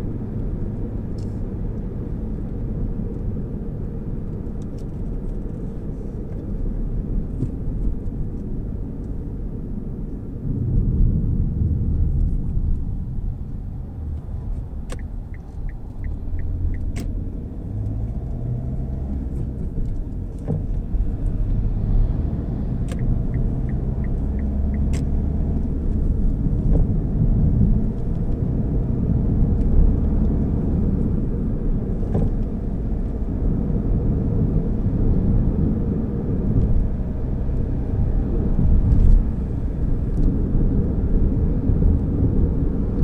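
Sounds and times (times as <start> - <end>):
car driving rumble: 0.0 - 43.0.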